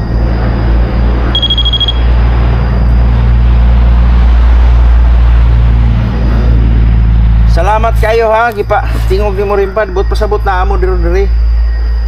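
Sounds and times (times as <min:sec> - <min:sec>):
vehicle passing rumble: 0:00.0 - 0:12.0
high electronic beep: 0:01.2 - 0:03.0, 0:08.0 - 0:12.0.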